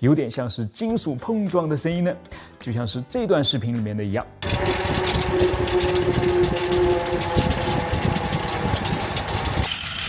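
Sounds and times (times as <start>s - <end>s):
steady hum: 4.4s - 9.7s
fan blades metallic clatter: 4.4s - 10.0s.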